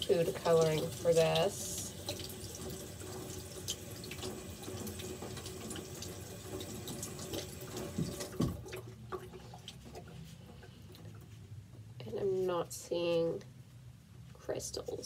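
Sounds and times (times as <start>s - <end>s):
tap water running into sink: 0.0s - 10.0s.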